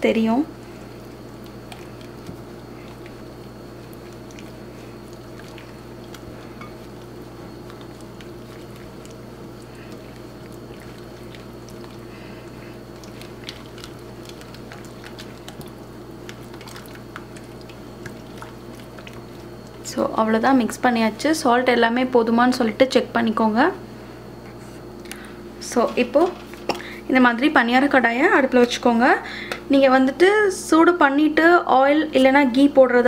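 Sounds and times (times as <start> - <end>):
steady low hum: 0.0 - 33.0
whisk beating batter: 0.6 - 21.1.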